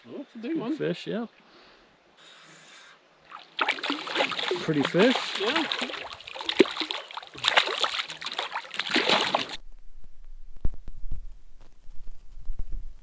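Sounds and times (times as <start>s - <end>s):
fish thrashing and splashing: 3.3s - 9.6s.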